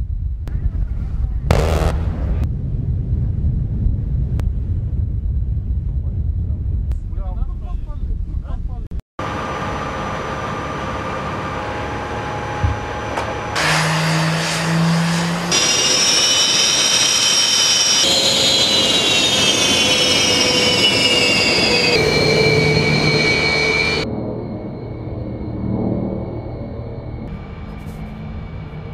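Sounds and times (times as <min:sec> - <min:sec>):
jet engine high whine: 0:00.0 - 0:08.6, 0:09.2 - 0:28.9
jet engine rushing hiss: 0:09.3 - 0:24.1.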